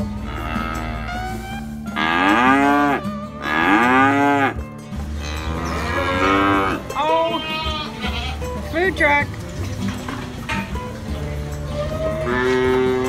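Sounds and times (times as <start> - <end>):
cows mooing: 0.0 - 8.6, 11.7 - 13.0.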